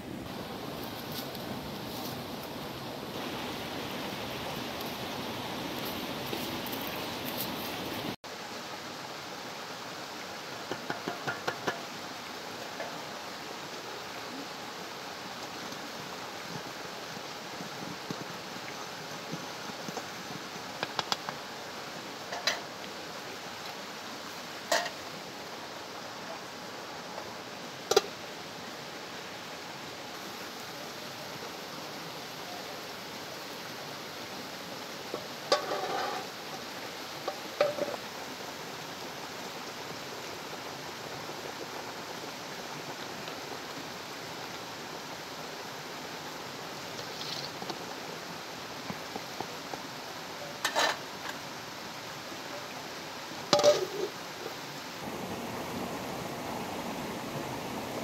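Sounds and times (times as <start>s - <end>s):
steady hiss: 0.0s - 58.0s
metal ladle clinking on pot: 53.6s - 53.9s.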